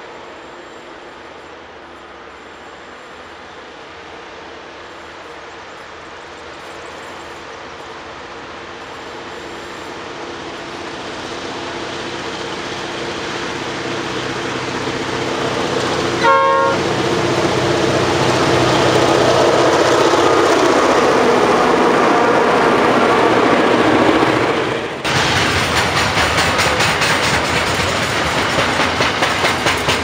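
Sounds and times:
diesel locomotives working hard: 0:00.0 - 0:30.0
train horn blast: 0:16.2 - 0:17.0.

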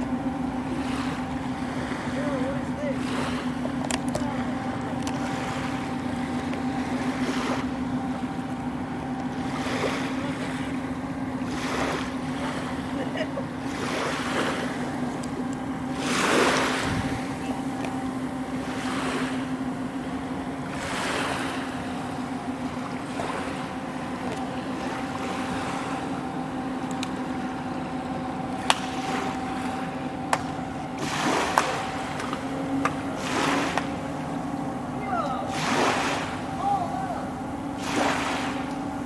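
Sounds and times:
low ferry engine drone: 0:00.0 - 0:39.0
small waves washing on beach: 0:11.4 - 0:13.0, 0:13.6 - 0:18.0, 0:31.0 - 0:34.4, 0:35.0 - 0:38.9.

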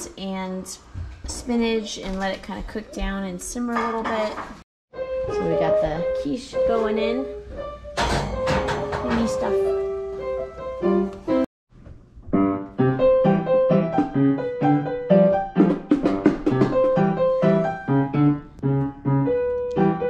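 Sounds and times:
child playing piano: 0:05.0 - 0:11.5, 0:12.4 - 0:20.0.

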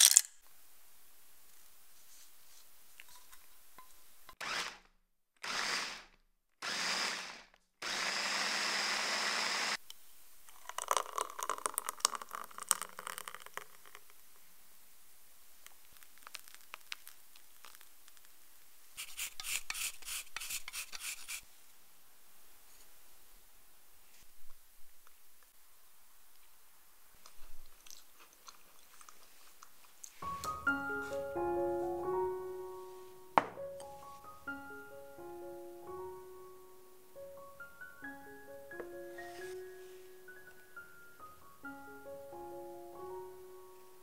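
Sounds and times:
crisp clicks: 0:00.0 - 0:00.4
blender motor running: 0:04.4 - 0:04.8, 0:05.4 - 0:09.8
liquid pouring into a glass: 0:10.5 - 0:14.0.

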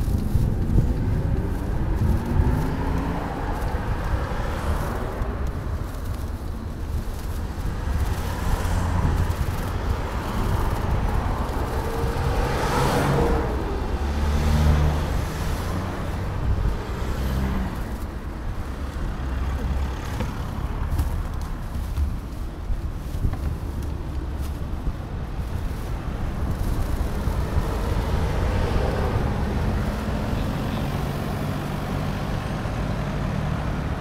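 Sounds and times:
vehicle passing close by: 0:00.0 - 0:06.3, 0:07.2 - 0:21.9, 0:25.4 - 0:34.0
low traffic rumble: 0:00.0 - 0:34.0.

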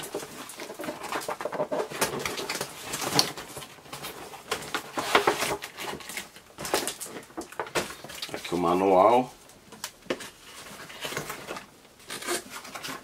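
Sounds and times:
cardboard box rustling and knocking: 0:00.0 - 0:08.2.

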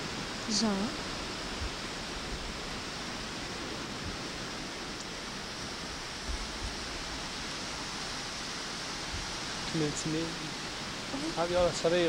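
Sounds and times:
low wind buffets: 0:00.0 - 0:12.0
wind rushing across microphone: 0:00.0 - 0:12.0.

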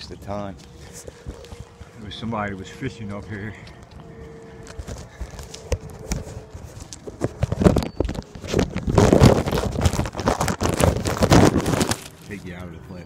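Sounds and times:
footsteps on wet ground: 0:00.0 - 0:10.3
plastic bag crackling: 0:04.6 - 0:12.6.

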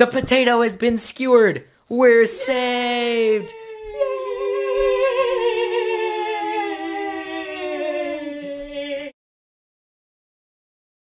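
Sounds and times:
person humming a long note: 0:03.3 - 0:09.2.

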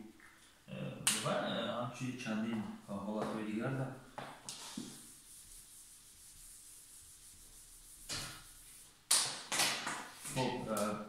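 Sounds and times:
eraser rubbing on whiteboard: 0:04.5 - 0:09.0.

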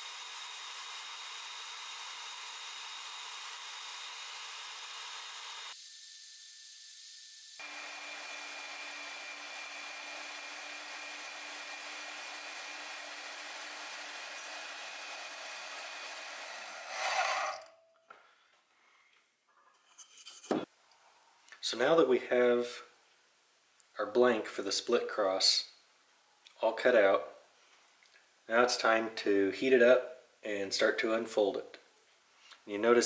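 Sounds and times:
band saw cutting steel: 0:07.6 - 0:17.9.

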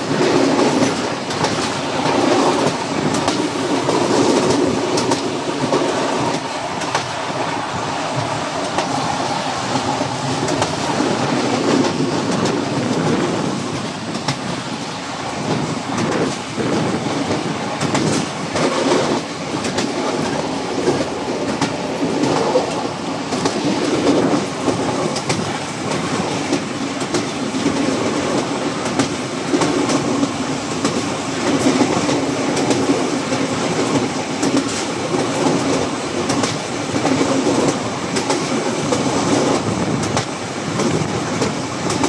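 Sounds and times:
train wheels rumbling on rails: 0:00.0 - 0:42.0
wheels clicking over rail joints: 0:15.4 - 0:42.0.

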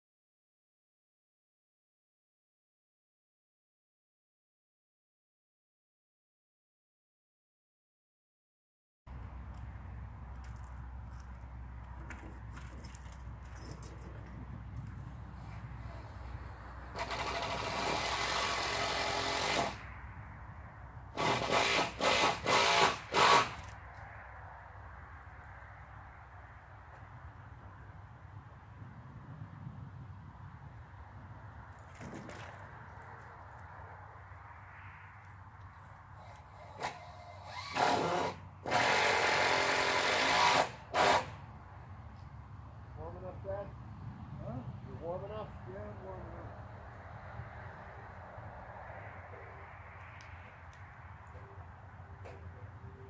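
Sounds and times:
power drill running: 0:16.9 - 0:19.8, 0:21.2 - 0:23.6, 0:36.2 - 0:41.3.

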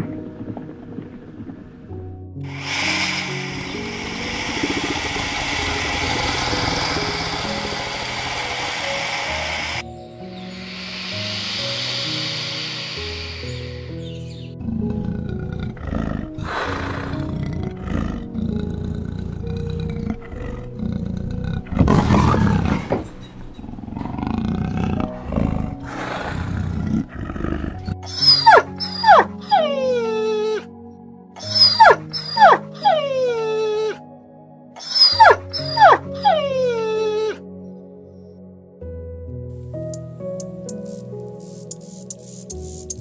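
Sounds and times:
soft background music: 0:00.0 - 0:43.0
animal growling and roaring: 0:02.4 - 0:30.7, 0:31.4 - 0:34.0, 0:34.8 - 0:37.4
dog whimpering: 0:28.0 - 0:30.7, 0:31.4 - 0:34.0, 0:34.8 - 0:37.4.

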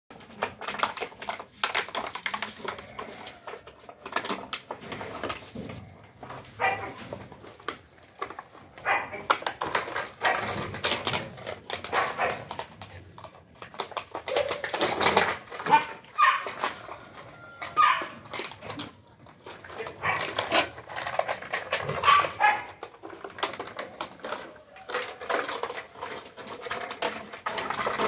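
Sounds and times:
claws clicking and scraping: 0:00.1 - 0:28.0
puppies yipping and growling: 0:08.4 - 0:28.0.

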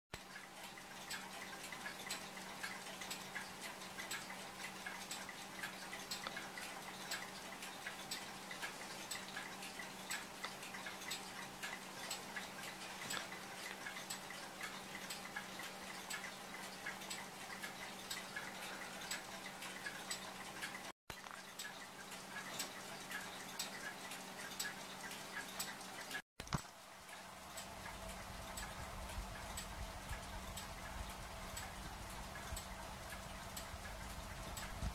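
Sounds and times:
mechanical clock ticking: 0:00.1 - 0:34.9
faint steady hum: 0:00.2 - 0:34.9.

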